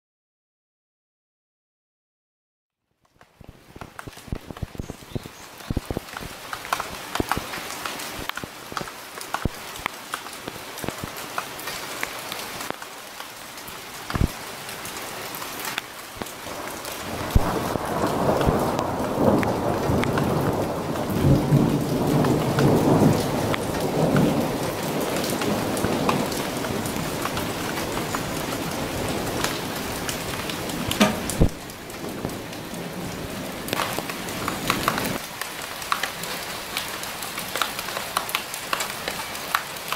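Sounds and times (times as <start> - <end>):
raindrops pattering close by: 2.9 - 39.9
steady rain falling: 2.9 - 39.9
low rumble of thunder: 16.6 - 33.6.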